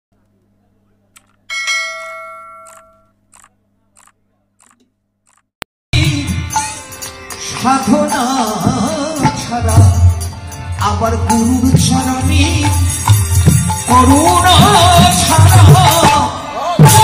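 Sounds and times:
devotional music with harmonium and drum: 0:06.0 - 0:17.0.

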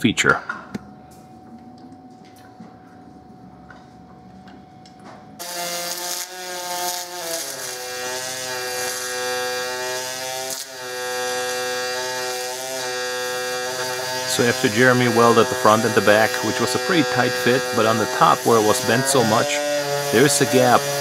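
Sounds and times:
welding arc buzzing: 0:05.3 - 0:21.0.

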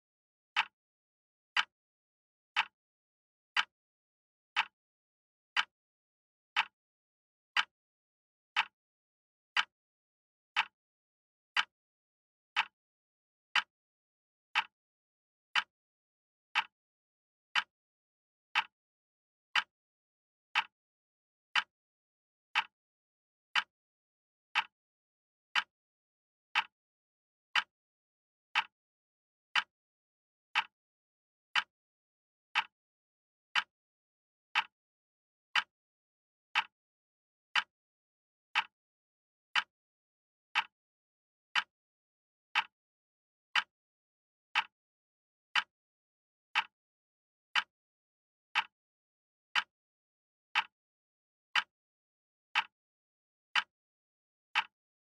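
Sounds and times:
wall clock ticking: 0:11.5 - 0:11.7.

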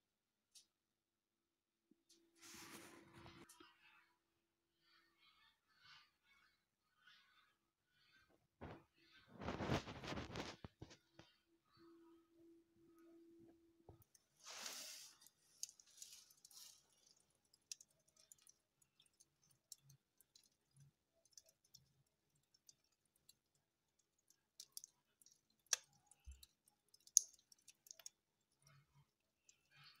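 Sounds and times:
wood stove fire crackling: 0:13.4 - 0:30.0.

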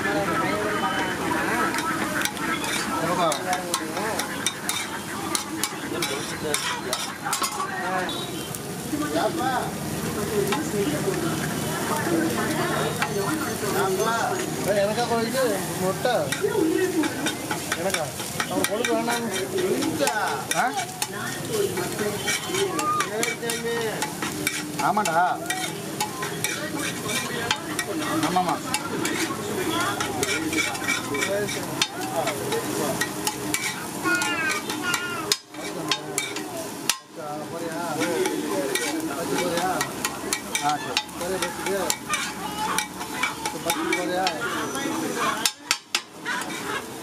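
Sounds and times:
egg sizzling: 0:00.1 - 0:47.0
spatula scraping iron griddle: 0:01.7 - 0:07.7, 0:13.0 - 0:47.0.

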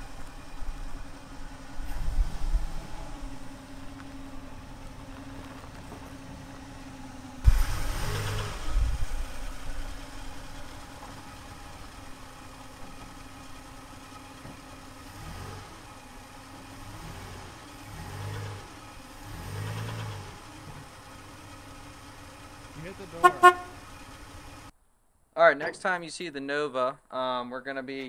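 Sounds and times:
loud low rush: 0:00.0 - 0:04.8, 0:06.9 - 0:12.3
car engine idling and revving: 0:00.0 - 0:24.8.

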